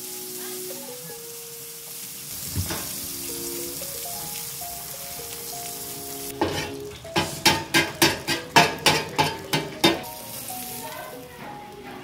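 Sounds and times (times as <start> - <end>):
food sizzling on a griddle: 0.0 - 12.0
metal spatula scraping griddle: 6.3 - 10.1.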